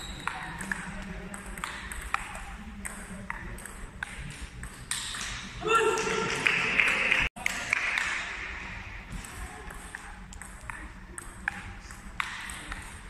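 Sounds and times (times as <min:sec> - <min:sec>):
table tennis ball clicking: 0:00.2 - 0:05.4.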